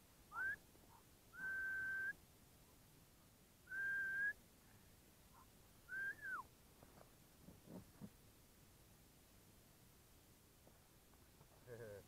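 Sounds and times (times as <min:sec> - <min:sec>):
man whistling: 0:00.3 - 0:00.6, 0:01.4 - 0:02.2, 0:03.7 - 0:04.4, 0:05.9 - 0:06.5.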